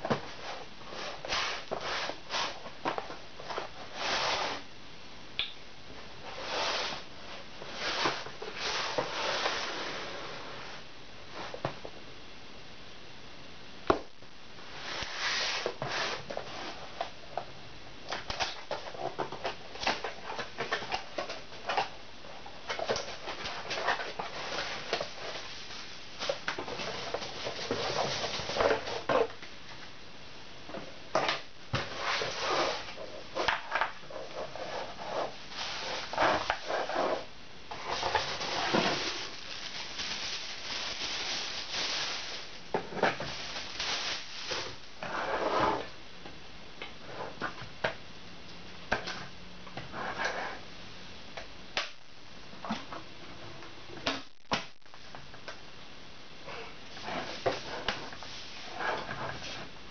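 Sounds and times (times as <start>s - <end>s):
plastic bag crinkling: 35.0s - 45.0s.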